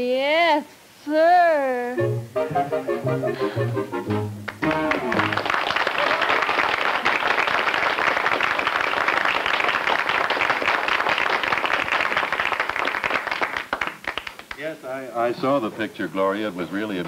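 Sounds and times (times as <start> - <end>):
audience applause: 3.5 - 14.7.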